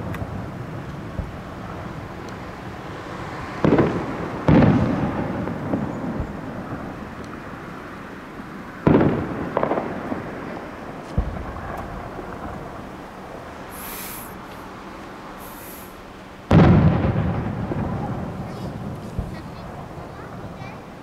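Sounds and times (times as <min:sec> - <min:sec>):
fireworks booms echoing: 0:00.0 - 0:07.6, 0:08.4 - 0:14.6, 0:15.4 - 0:21.0
short hisses: 0:13.7 - 0:14.7, 0:15.4 - 0:16.1.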